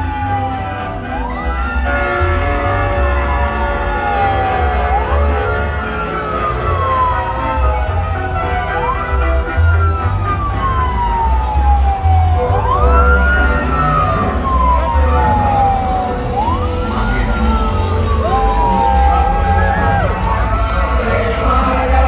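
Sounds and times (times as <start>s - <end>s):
siren wailing: 0.0s - 22.0s
music with deep bass beat: 5.6s - 22.0s.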